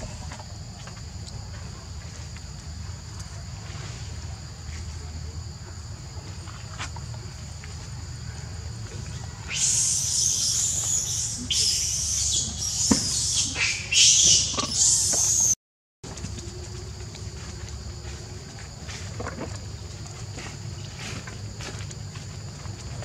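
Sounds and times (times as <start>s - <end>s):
insects trilling: 0.0s - 23.0s
loud hissing noise: 9.1s - 15.6s.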